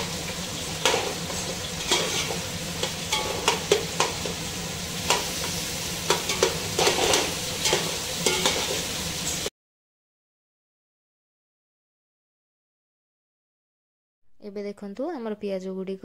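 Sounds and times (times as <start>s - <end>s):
onions sizzling in oil: 0.0s - 9.5s
steel spoon scraping a pot: 0.8s - 4.3s, 5.1s - 8.9s.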